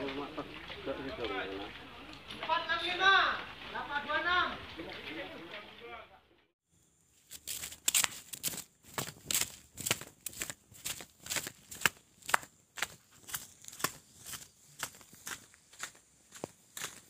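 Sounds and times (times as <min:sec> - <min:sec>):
sandal footsteps on pavement: 0:07.2 - 0:17.0.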